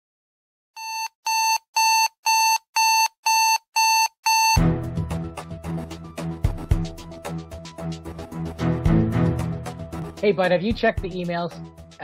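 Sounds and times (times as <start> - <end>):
alarm clock beeping: 0.8 - 4.6
music: 4.6 - 12.0.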